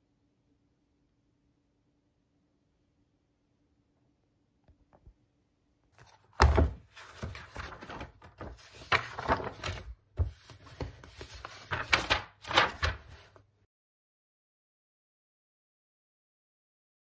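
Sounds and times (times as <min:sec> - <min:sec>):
paper pages rustling: 0:06.0 - 0:13.5.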